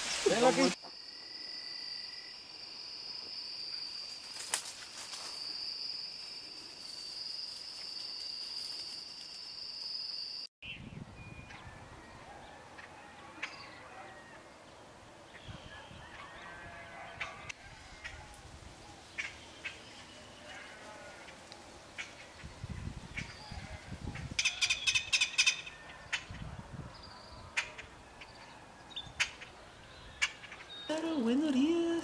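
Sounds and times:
night insects trilling: 0:00.0 - 0:10.5.

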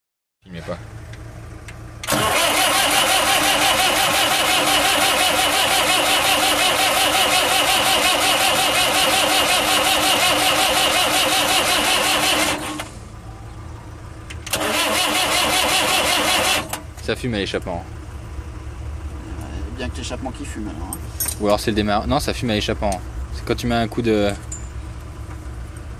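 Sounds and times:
starter motor cranking diesel engine: 0:01.1 - 0:13.1, 0:14.2 - 0:17.8.

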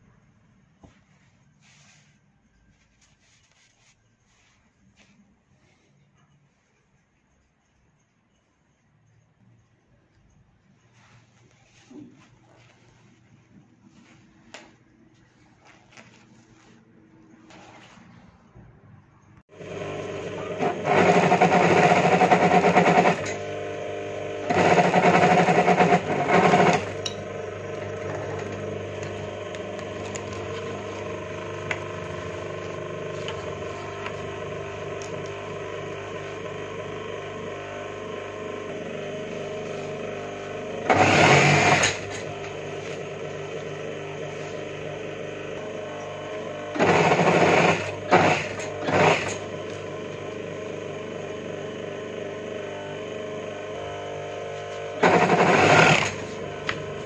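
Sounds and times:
sewing machine rattling: 0:19.6 - 0:53.9, 0:54.7 - 0:57.0.

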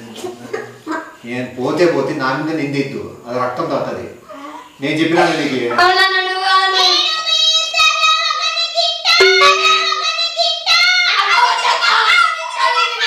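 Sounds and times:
steady low tone: 0:09.2 - 0:10.3.

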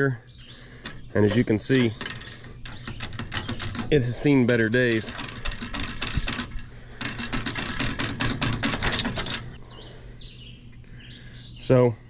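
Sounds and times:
sheet metal crackling and snapping: 0:00.8 - 0:09.6.

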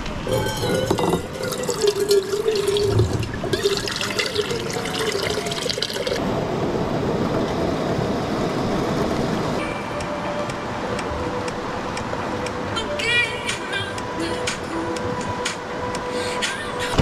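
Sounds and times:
water pouring into a metal pot: 0:00.3 - 0:06.2.

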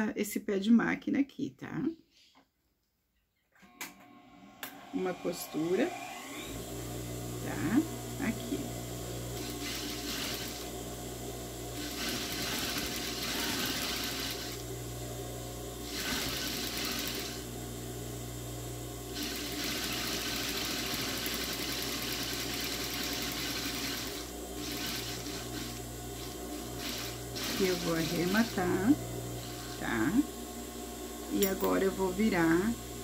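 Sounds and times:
sewing machine motor humming: 0:08.8 - 0:11.0, 0:11.7 - 0:14.8, 0:15.8 - 0:17.6, 0:19.1 - 0:30.2
sewing machine stitching: 0:09.4 - 0:10.7, 0:11.8 - 0:14.6, 0:15.8 - 0:17.4, 0:19.1 - 0:28.6.

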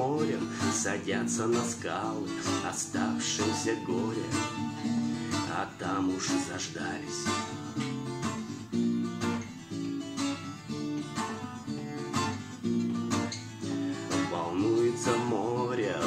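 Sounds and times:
person singing: 0:00.0 - 0:07.6, 0:13.9 - 0:16.0
acoustic guitar strumming: 0:00.0 - 0:16.0.

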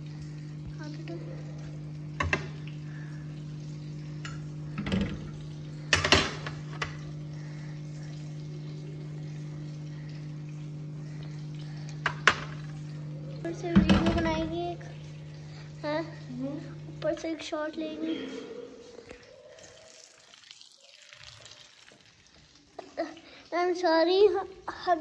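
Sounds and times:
steady low hum: 0:00.0 - 0:19.8.

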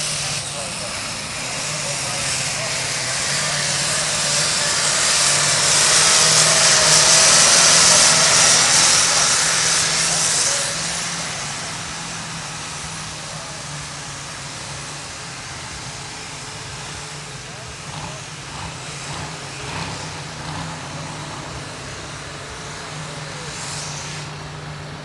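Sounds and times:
loud hiss: 0:00.0 - 0:25.0
tractor engine at full load: 0:00.0 - 0:25.0.

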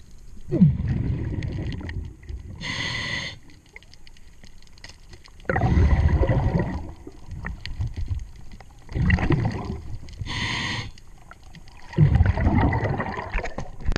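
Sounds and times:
underwater exhaled bubbles gurgling: 0:00.0 - 0:04.4, 0:05.1 - 0:13.9
regulator inhalation hiss: 0:02.6 - 0:03.5, 0:10.2 - 0:11.0.

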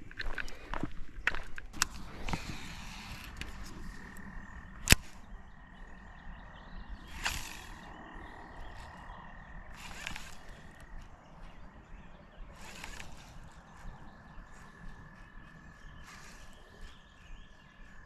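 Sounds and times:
frogs calling: 0:00.0 - 0:18.0
sharp click: 0:03.2 - 0:05.2.

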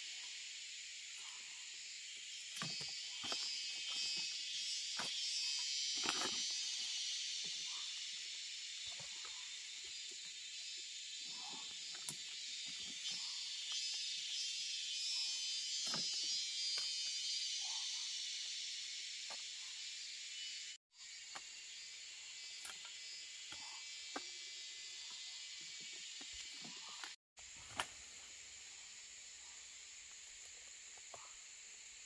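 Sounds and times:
high-pitched insect chorus: 0:00.0 - 0:32.0.

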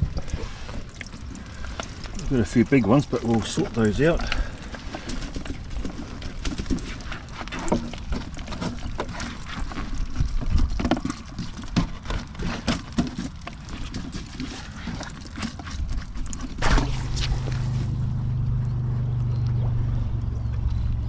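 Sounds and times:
wind rumbling on microphone: 0:00.0 - 0:12.4
water dripping and splashing: 0:00.0 - 0:19.4.

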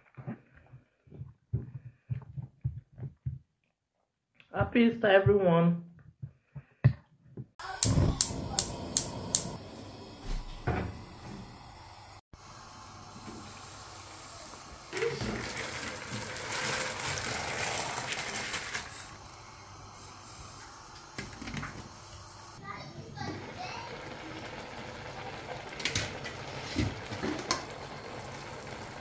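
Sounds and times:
sharp clicks: 0:07.6 - 0:09.6
water running: 0:07.6 - 0:29.0.

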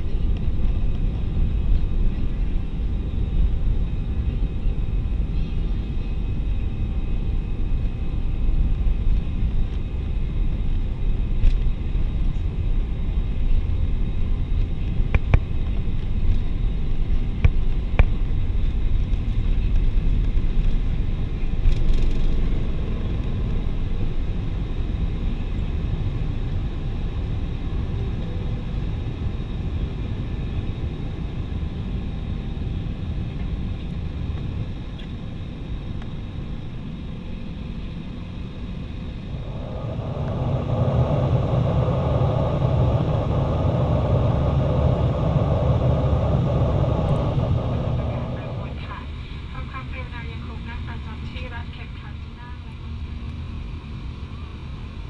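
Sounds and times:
wheels rumbling on runway: 0:00.0 - 0:50.0
jet engines at takeoff thrust: 0:00.0 - 0:55.0.

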